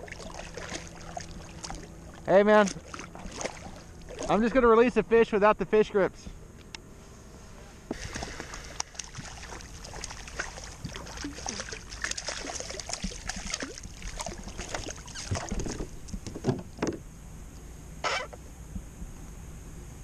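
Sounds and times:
water splashing and trickling: 0.0 - 4.6, 7.9 - 16.9.

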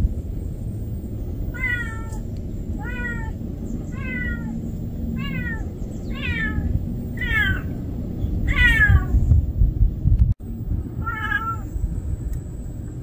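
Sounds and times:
kitten meowing: 1.5 - 2.2, 2.8 - 4.6, 5.2 - 7.8, 8.4 - 9.2, 11.0 - 11.7.

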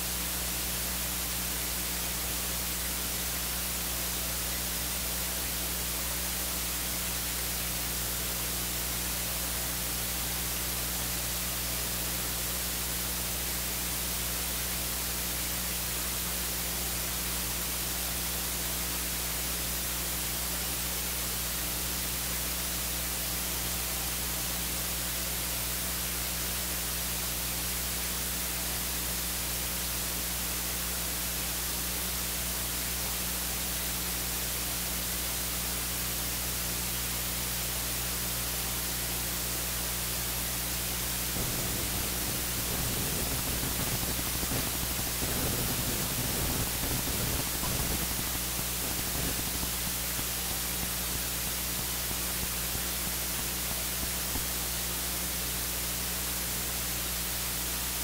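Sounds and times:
electronic static hiss: 0.0 - 58.0
low hum: 41.2 - 52.6.

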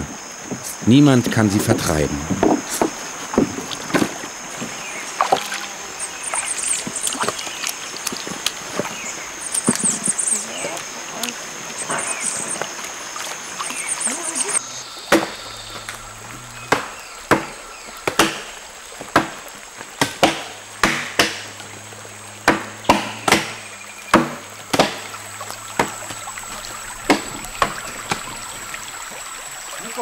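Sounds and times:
hand tools chopping wood: 15.1 - 15.4, 16.6 - 19.4, 20.0 - 21.5, 22.4 - 25.1.

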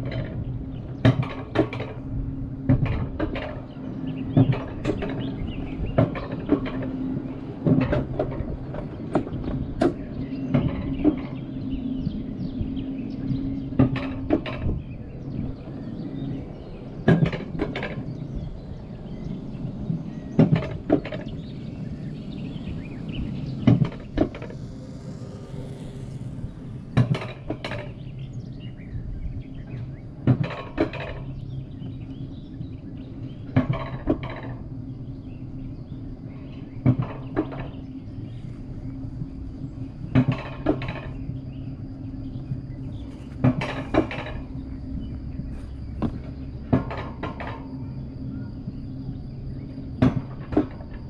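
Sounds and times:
metallic clacks of wheels: 0.0 - 51.0
sled rolling rumble: 0.0 - 51.0.

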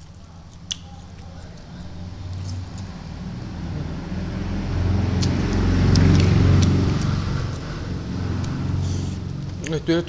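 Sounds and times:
wet chewing mouth clicks: 0.1 - 3.0, 5.1 - 7.7
low rumble: 1.8 - 8.8.

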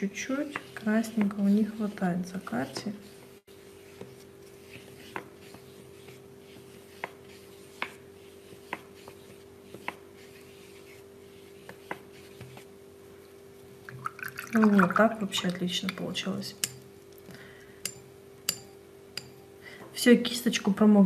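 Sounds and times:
paintbrush rubbing on paper: 0.0 - 12.7
faint steady hum: 0.0 - 21.0.

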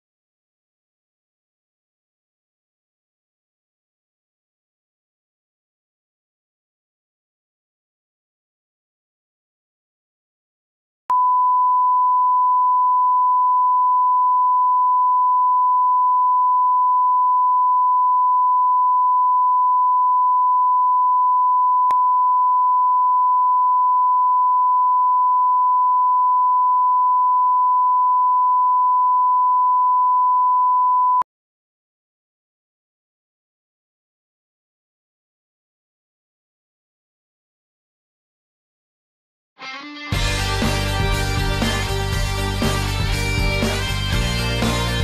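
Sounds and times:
pure reference tone: 11.1 - 31.2.

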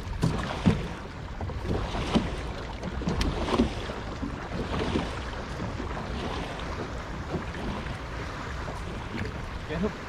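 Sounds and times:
small waves slapping a boat hull: 0.0 - 10.0.

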